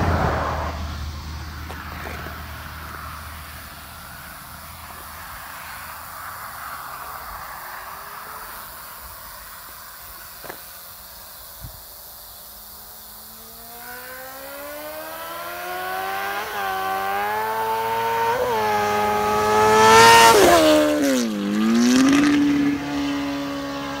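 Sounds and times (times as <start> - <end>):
motorcycle accelerating past: 0.0 - 1.2, 13.2 - 24.0.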